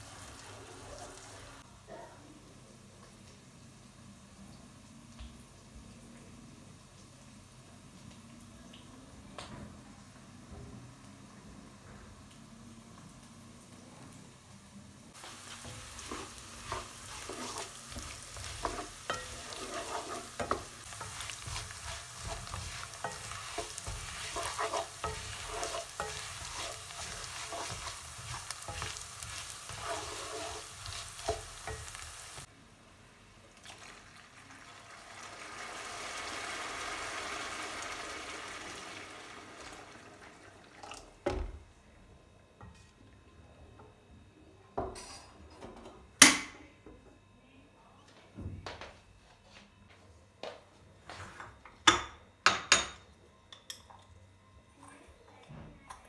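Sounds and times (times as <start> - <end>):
rice sizzling in a frying pan: 0.0 - 1.7, 15.1 - 40.8
wooden spoon scraping a pan: 15.2 - 32.5.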